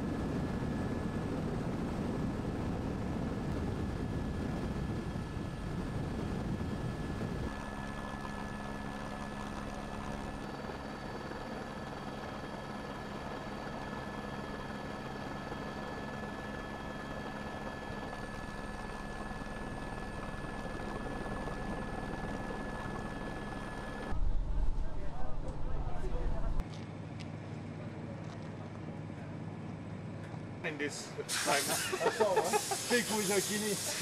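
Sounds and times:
steady whining tones: 0.0 - 26.6
engine drone: 0.0 - 31.2.

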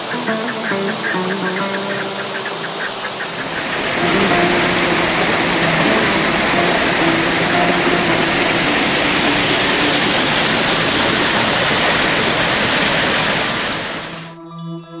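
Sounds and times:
soft music with held notes: 0.0 - 10.9
water rushing onto mill wheel: 2.1 - 14.3.

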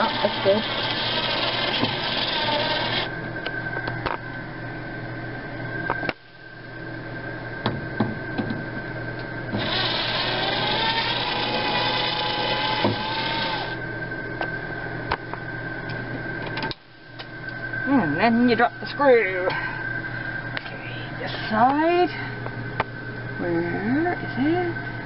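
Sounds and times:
power drill motor whine: 0.0 - 3.1, 9.5 - 13.8.

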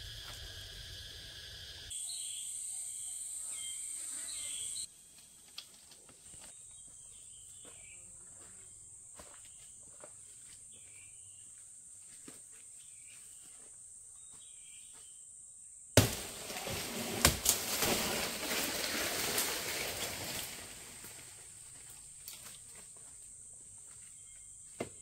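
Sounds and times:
faint chirps: 0.0 - 5.0, 6.0 - 12.1
insects droning: 0.0 - 25.0.

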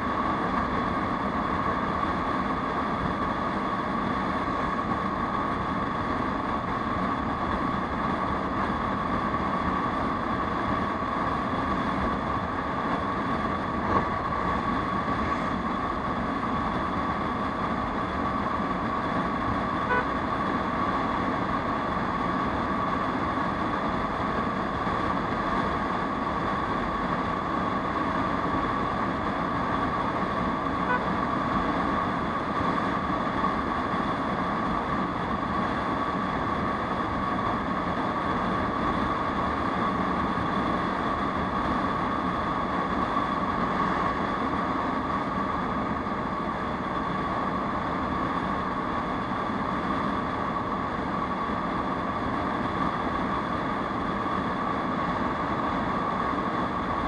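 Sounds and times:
wind and road noise: 0.0 - 57.0
scooter engine droning: 17.7 - 20.4
faint short beeps: 19.8 - 20.1, 30.8 - 31.1.

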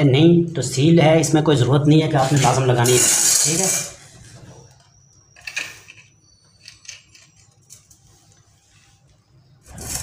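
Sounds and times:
metal clinks and scrapes on floor: 2.2 - 4.1.

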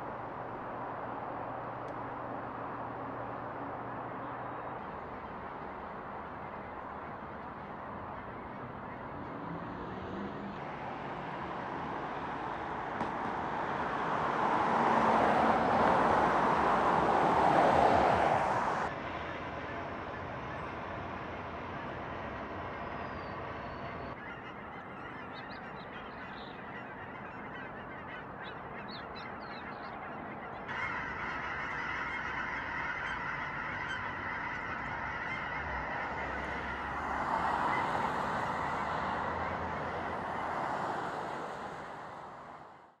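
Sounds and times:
flock of geese honking: 18.8 - 41.2.

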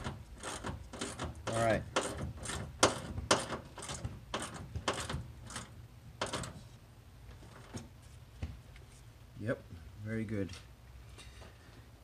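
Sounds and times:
hand ratchet clicking: 0.0 - 6.6.

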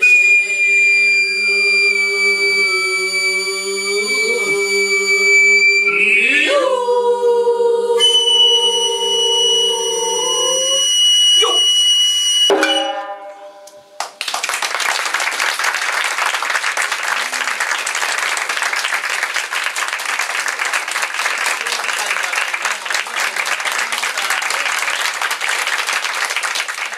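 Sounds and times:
high bamboo flute: 0.0 - 13.9
ensemble singing: 0.1 - 10.8
drum and lute struck notes: 12.5 - 13.4
audience applause: 14.0 - 26.9.

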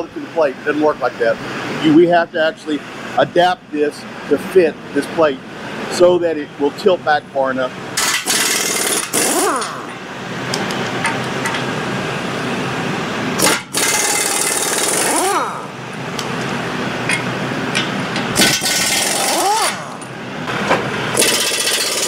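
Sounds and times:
impact wrench hammering: 8.0 - 10.0, 13.4 - 15.7, 17.1 - 20.1, 21.1 - 22.0
tool whine spinning: 8.0 - 10.0, 13.4 - 20.2, 21.1 - 22.0.

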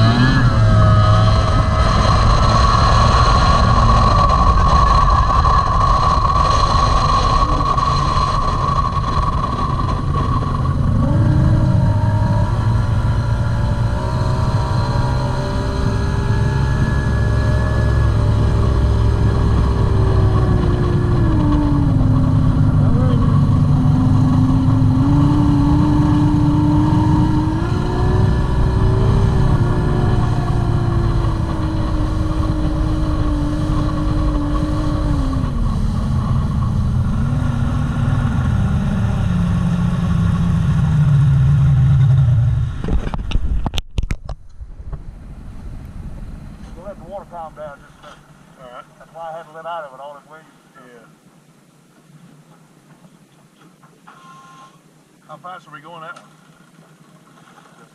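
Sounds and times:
outboard boat engine running: 0.0 - 43.1.

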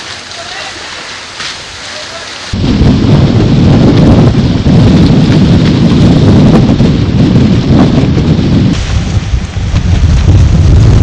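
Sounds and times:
water rushing along hull: 0.0 - 11.0
wind buffeting microphone: 2.4 - 11.0.

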